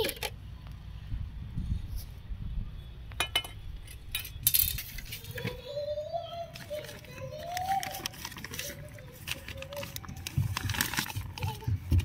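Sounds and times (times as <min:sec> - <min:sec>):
plastic packet clicks and crinkles: 0:06.5 - 0:12.0.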